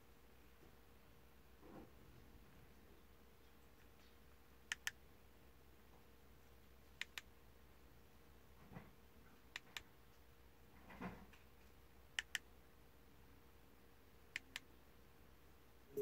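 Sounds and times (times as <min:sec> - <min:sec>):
touchscreen tapping clicks: 0:04.7 - 0:05.0, 0:12.2 - 0:12.4.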